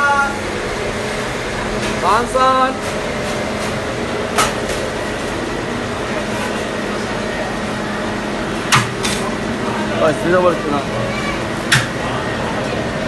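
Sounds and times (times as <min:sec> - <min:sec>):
machinery humming: 0:00.0 - 0:13.0.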